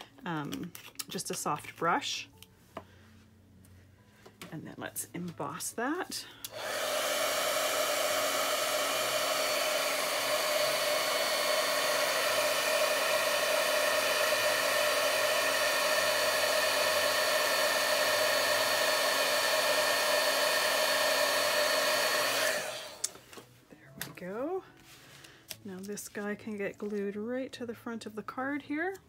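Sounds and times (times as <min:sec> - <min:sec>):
heat tool fan whine: 0:06.4 - 0:23.1.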